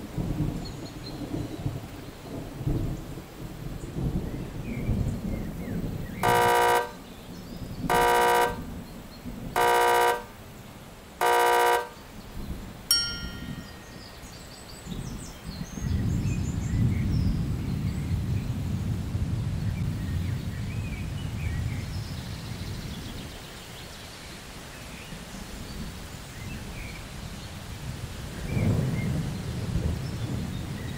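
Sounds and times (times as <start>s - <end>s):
wrong answer buzzer: 6.2s - 7.0s, 7.9s - 8.7s, 9.6s - 10.3s, 11.2s - 12.0s, 12.9s - 13.8s
bright ding: 12.9s - 14.1s.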